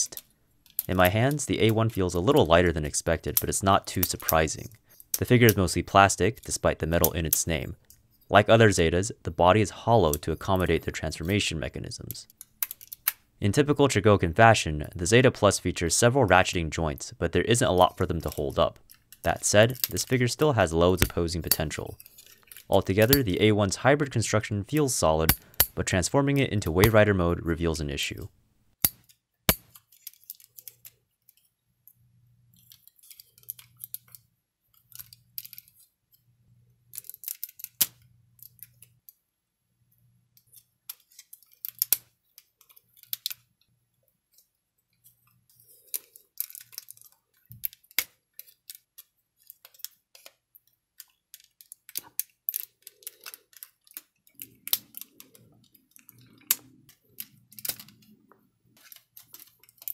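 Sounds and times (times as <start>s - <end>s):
action figure parts clicking: 0.0s - 2.4s, 12.2s - 13.2s, 28.8s - 32.0s, 32.6s - 35.8s, 36.9s - 39.2s, 40.4s - 43.5s, 45.2s - 58.2s, 58.8s - 59.9s
ratcheting joints: 51.0s - 58.2s.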